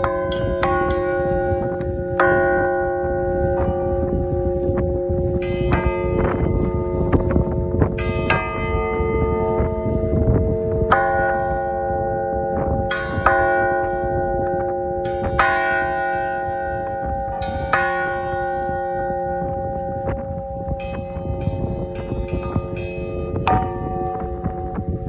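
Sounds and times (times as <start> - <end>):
bronze bell struck with mallet: 0.0 - 25.0.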